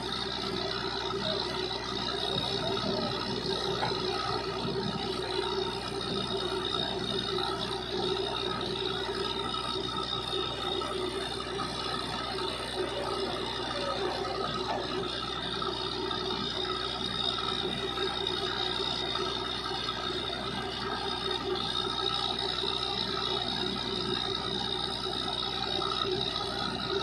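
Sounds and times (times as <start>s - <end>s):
drilling rig drone and whine: 0.0s - 27.0s.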